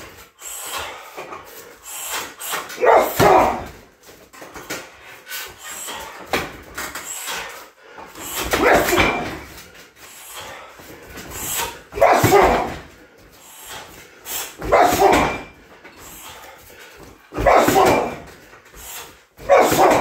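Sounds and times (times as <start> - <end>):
kicks and punches on heavy bag: 2.8 - 3.8, 8.4 - 9.6, 11.9 - 13.0, 14.6 - 15.6, 17.3 - 18.5, 19.4 - 20.0.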